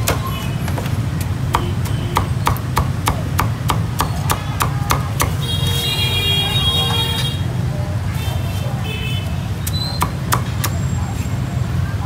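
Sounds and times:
cleaver chopping on wooden block: 0.0 - 5.4.

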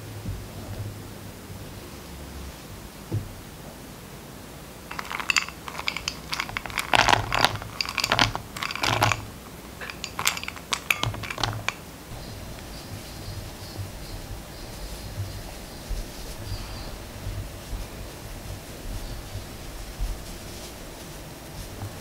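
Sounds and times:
butter cubes clicking on glass: 4.9 - 11.8
fingers rubbing butter into flour: 4.9 - 22.0.

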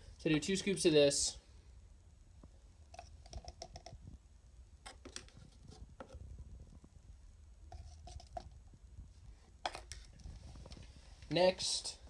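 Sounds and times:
plastic scoop scraping and tapping: 2.9 - 4.0, 4.9 - 6.2, 7.7 - 8.6, 9.6 - 10.8.

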